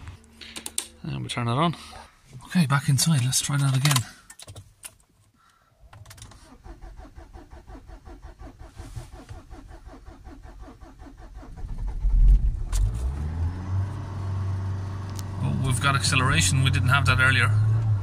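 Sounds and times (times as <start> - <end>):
diesel engine rumbling and revving: 6.5 - 18.0.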